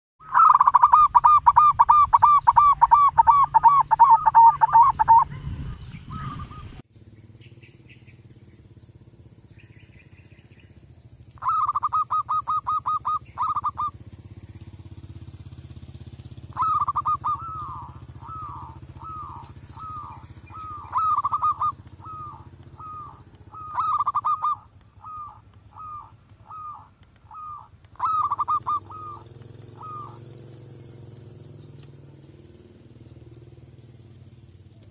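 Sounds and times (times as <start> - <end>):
dove cooing: 0.2 - 6.8, 11.4 - 14.2, 16.4 - 31.1
steady low hum: 0.4 - 34.9.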